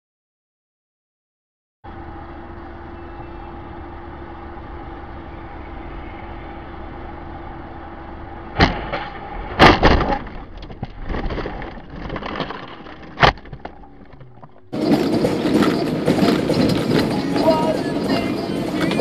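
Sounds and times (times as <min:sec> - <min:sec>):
car engine humming: 0:01.9 - 0:19.0
car crash bang: 0:08.5 - 0:14.2
crunching impact: 0:08.5 - 0:17.4
clattering and rattling: 0:08.6 - 0:19.0.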